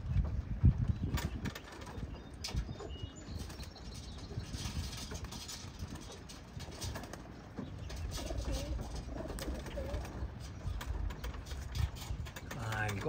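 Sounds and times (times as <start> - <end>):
pigeons cooing: 1.3 - 12.3.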